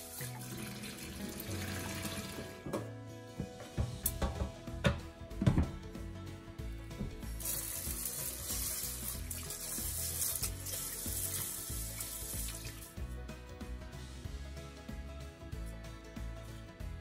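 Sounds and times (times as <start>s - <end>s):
tap water running into pot: 0.0s - 2.7s, 7.0s - 13.0s
background music: 0.0s - 17.0s.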